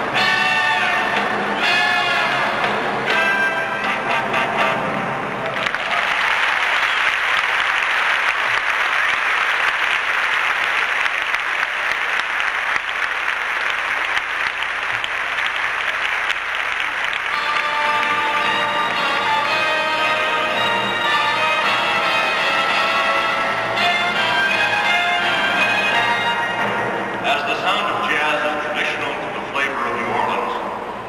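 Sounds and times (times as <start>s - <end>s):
music: 0.0s - 5.8s, 16.8s - 29.2s
audience applauding: 5.3s - 27.1s.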